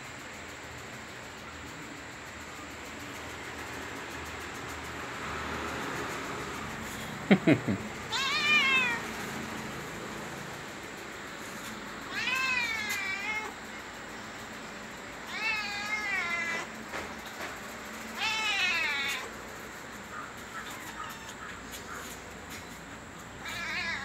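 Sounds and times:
cat meowing: 8.1s - 9.1s, 12.1s - 13.6s, 15.2s - 16.7s, 18.2s - 19.3s, 20.7s - 21.5s, 23.4s - 24.0s.

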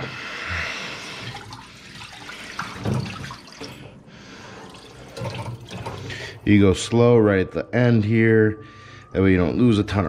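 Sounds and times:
water pouring and splashing: 1.1s - 4.0s, 4.6s - 6.4s.

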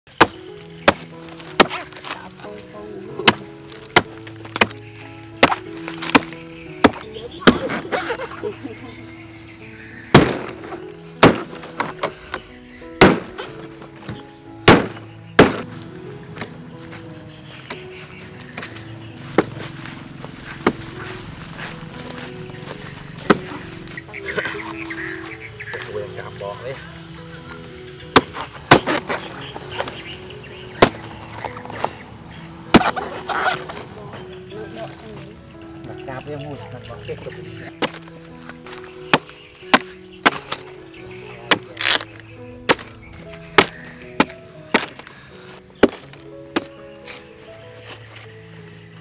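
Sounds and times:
blade chopping palm stems: 0.1s - 8.2s, 10.1s - 15.7s, 18.5s - 19.8s, 20.4s - 22.3s, 23.2s - 24.5s, 28.1s - 30.1s, 30.7s - 32.0s, 32.6s - 34.0s, 37.8s - 40.8s, 41.5s - 45.2s, 45.8s - 48.3s
background music: 0.1s - 49.0s.

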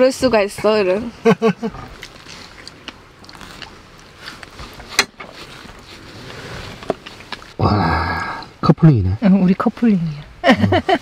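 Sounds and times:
faint chewing: 1.7s - 7.6s.

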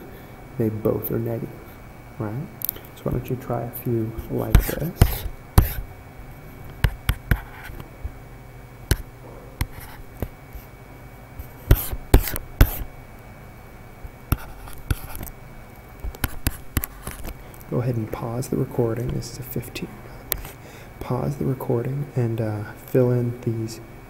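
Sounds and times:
faint steady hum: 0.0s - 24.0s
stylus tapping and scraping tablet: 4.2s - 5.9s, 6.5s - 8.2s, 8.9s - 10.7s, 11.4s - 12.9s, 14.1s - 17.6s, 20.2s - 20.6s.

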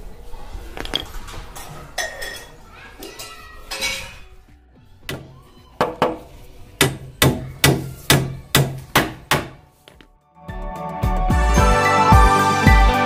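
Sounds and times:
hammer knocking on wood: 5.8s - 9.6s.

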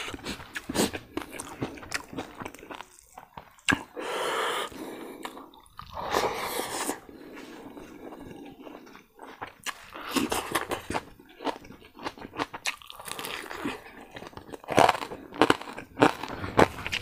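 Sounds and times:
person chewing crunchy food: 0.0s - 17.0s
hissy mouth sounds: 3.7s - 7.5s.

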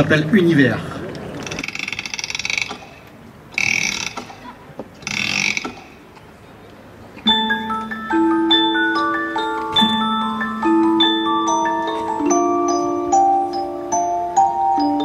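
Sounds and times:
crank ratcheting clicks: 1.4s - 3.0s, 3.6s - 4.4s, 5.0s - 5.9s
music-box melody: 7.2s - 15.0s.

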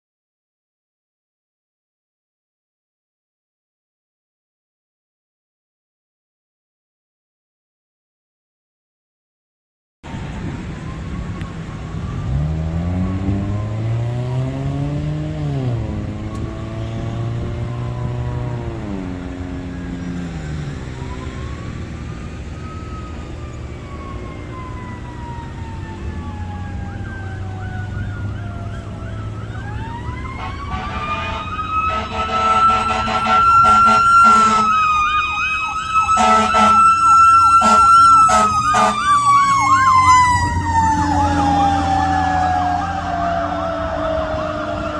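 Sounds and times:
wailing siren: 10.0s - 44.9s
siren fast warbling yelp: 26.2s - 44.9s
air horn blasts: 30.4s - 34.8s, 36.1s - 37.0s, 37.6s - 39.0s.

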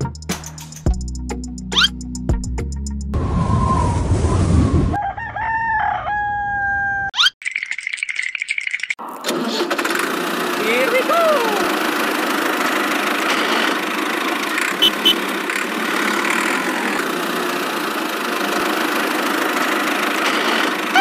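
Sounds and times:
engine idling: 9.3s - 21.0s.

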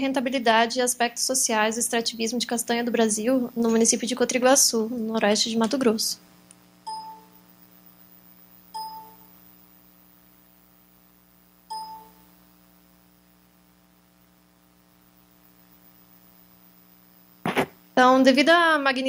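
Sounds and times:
low electrical hum: 0.0s - 19.0s
short electronic ding tones: 6.9s - 7.4s, 8.8s - 9.2s, 11.7s - 12.2s.

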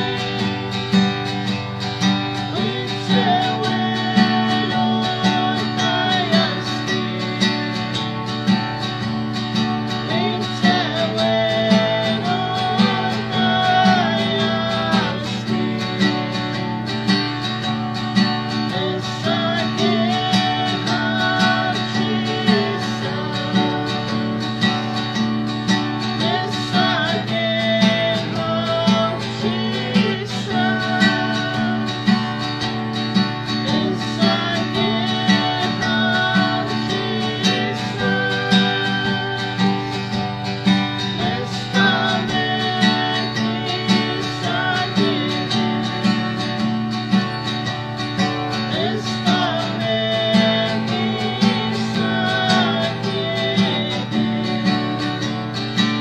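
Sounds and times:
person singing: 0.0s - 9.1s, 9.7s - 46.7s, 48.2s - 56.0s
acoustic guitar strumming: 0.0s - 56.0s.

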